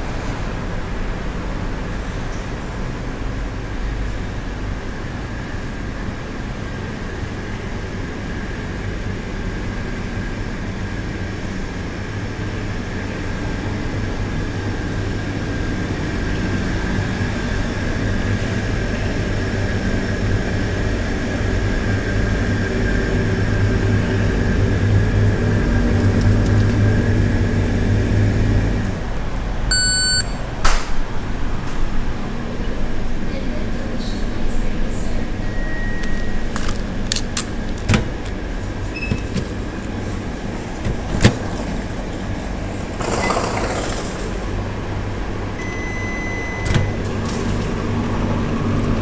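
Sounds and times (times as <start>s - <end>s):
hum of refrigerators and air conditioning: 0.0s - 49.0s
barcode scanner beep: 29.7s - 30.4s, 45.6s - 47.0s.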